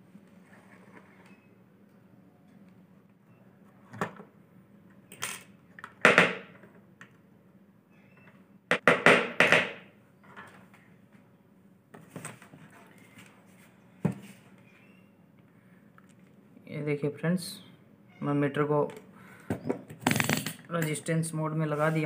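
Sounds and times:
tools clicking and clattering on wood: 18.9s - 21.0s.

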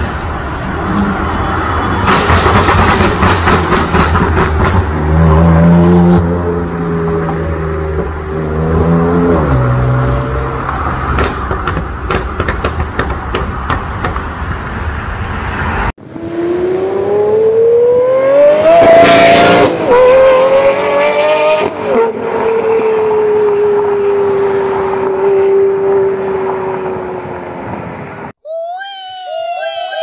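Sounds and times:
supercar accelerating hard: 16.0s - 27.4s.

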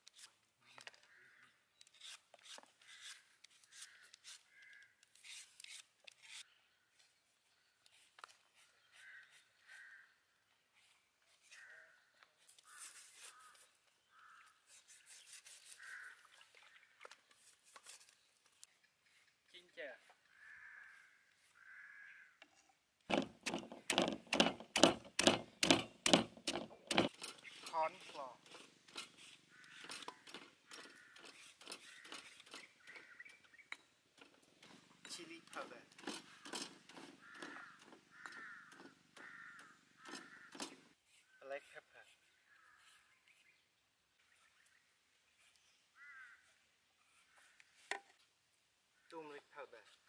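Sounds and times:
crow cawing: 1.0s - 1.6s, 3.8s - 5.0s, 9.0s - 10.2s, 11.5s - 14.6s, 15.8s - 16.3s, 20.3s - 22.4s, 29.0s - 33.4s, 35.5s - 40.8s, 42.5s - 43.0s, 46.0s - 46.5s
pestle pounding in stone mortar: 23.1s - 27.2s.

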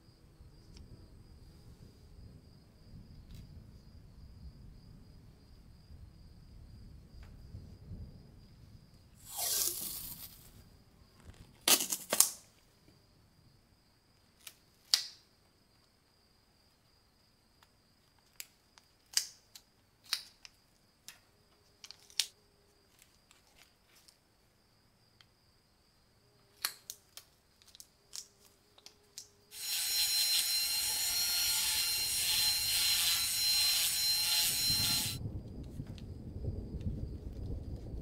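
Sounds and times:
masking tape tearing and crackling: 9.2s - 10.5s, 11.6s - 12.4s
rotary tool sanding whine: 29.5s - 35.2s.

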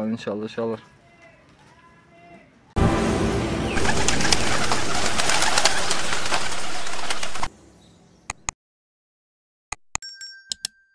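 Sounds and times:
sharp clicks: 8.3s - 8.6s.

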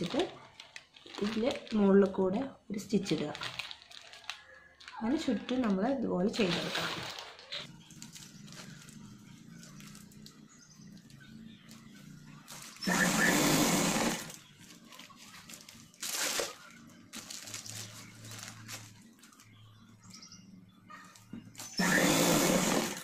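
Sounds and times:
sewing machine stitching: 12.7s - 14.4s, 21.8s - 23.0s.

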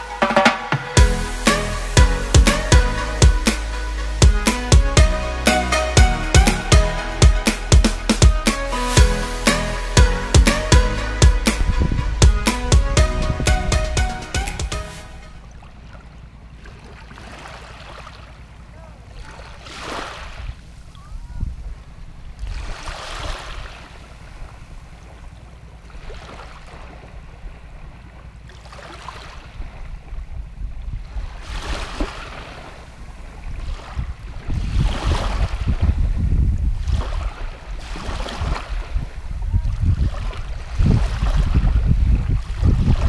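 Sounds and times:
wind rumbling on microphone: 11.4s - 14.2s, 20.2s - 28.4s, 29.4s - 43.0s
small waves washing on sand: 15.8s - 30.3s, 30.9s - 43.0s.

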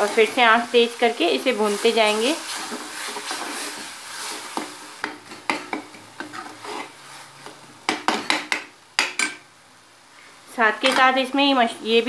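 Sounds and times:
spatula scraping metal pan: 0.0s - 7.4s
food frying: 0.0s - 9.6s.

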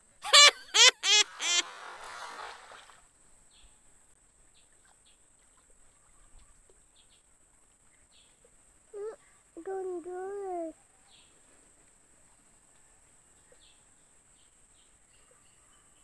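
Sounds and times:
net splashing into water: 1.3s - 3.1s.

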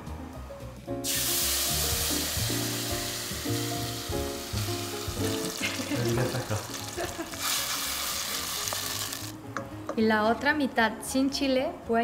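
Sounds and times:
puree sizzling in hot oil: 1.0s - 9.4s.

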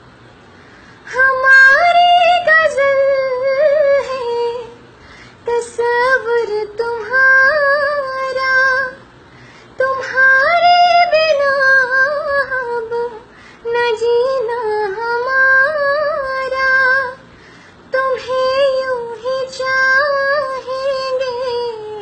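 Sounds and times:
woman breathing: 0.4s - 1.1s, 4.9s - 5.5s, 9.2s - 9.8s, 13.3s - 13.7s, 17.3s - 17.9s
woman singing unaccompanied: 1.0s - 22.0s.

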